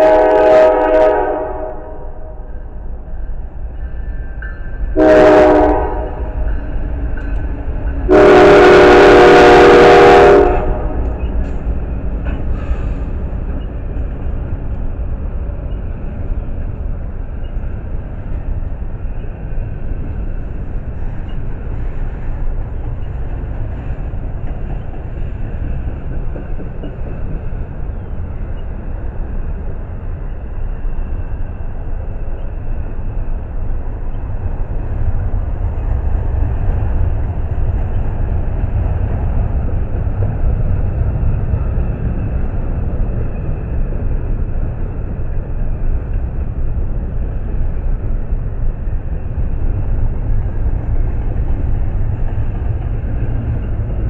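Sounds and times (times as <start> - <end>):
locomotive air horn: 0.0 - 2.5, 5.0 - 6.4, 8.1 - 11.2
train passing rumble: 0.0 - 54.0.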